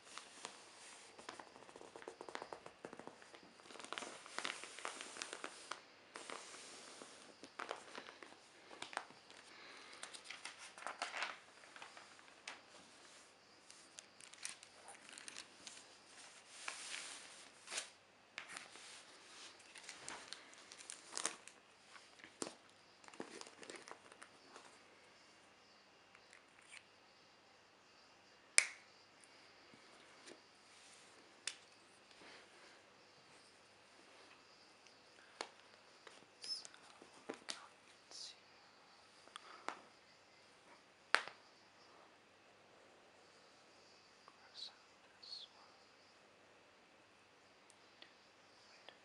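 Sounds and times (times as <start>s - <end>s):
newspaper rustling and crinkling: 0.0s - 24.7s
pages being turned: 0.0s - 24.7s.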